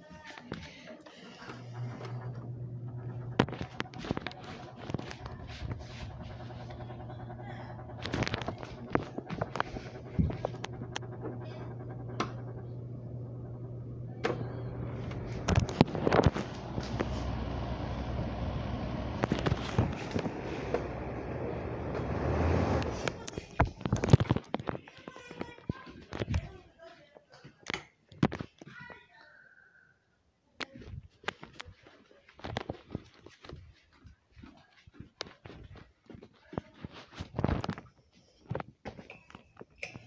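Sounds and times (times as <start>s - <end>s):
fan motor humming: 1.1s - 24.7s.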